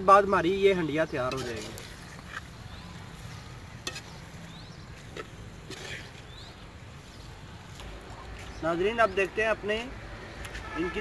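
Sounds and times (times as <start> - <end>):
metal spoon stirring in pot: 1.1 - 6.6.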